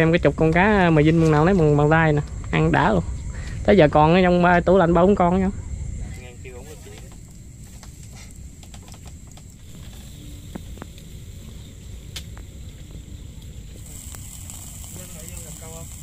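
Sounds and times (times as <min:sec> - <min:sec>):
insects droning: 0:00.0 - 0:16.0
low rumble: 0:00.0 - 0:16.0
faint clicks and crackles: 0:06.5 - 0:16.0.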